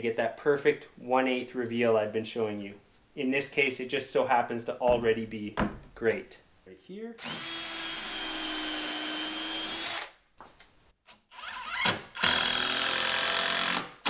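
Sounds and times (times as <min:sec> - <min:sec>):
power drill driving a screw: 0:07.2 - 0:10.2, 0:11.3 - 0:14.0.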